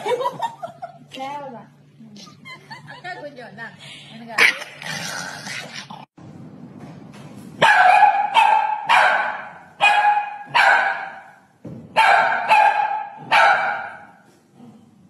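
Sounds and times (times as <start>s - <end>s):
small dog barking: 7.6s - 11.2s, 12.0s - 14.0s.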